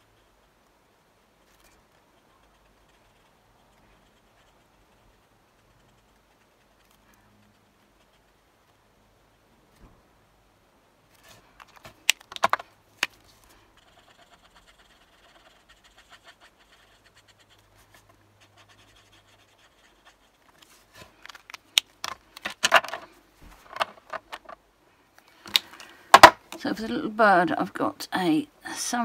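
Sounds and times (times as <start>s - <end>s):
marker nib rubbing on card: 1.4s - 8.8s, 13.7s - 20.9s
markers clattering: 11.6s - 13.2s, 20.6s - 24.6s.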